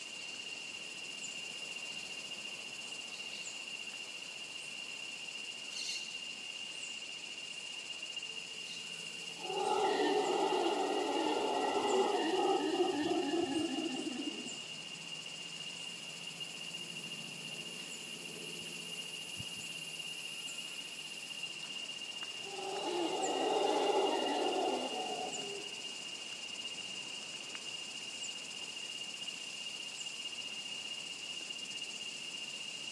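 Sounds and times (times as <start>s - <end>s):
howler monkey howling: 9.3s - 14.7s, 22.4s - 25.8s.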